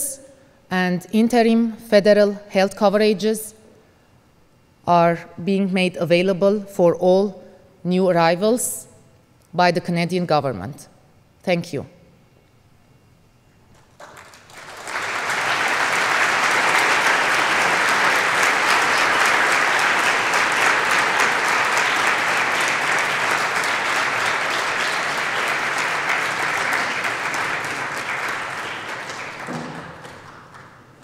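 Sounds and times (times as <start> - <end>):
audience clapping: 13.7 - 31.0.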